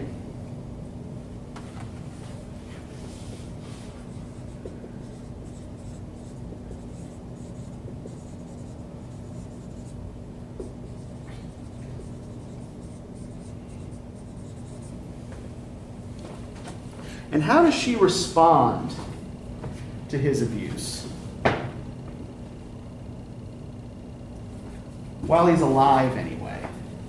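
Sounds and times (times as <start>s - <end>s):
steady low hum: 0.0s - 27.0s
marker scratching on whiteboard: 3.7s - 10.0s, 10.6s - 15.0s.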